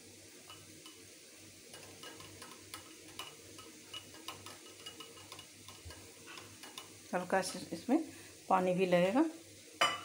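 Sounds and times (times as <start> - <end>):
whisk clicking against glass bowl: 1.8 - 6.9.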